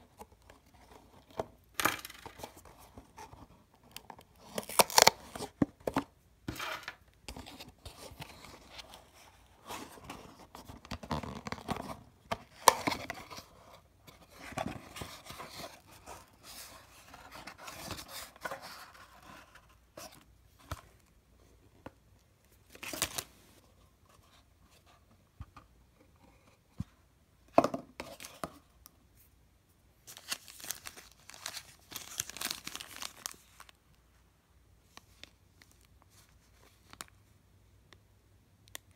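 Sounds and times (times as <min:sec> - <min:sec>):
tape tearing: 0:04.4 - 0:05.5.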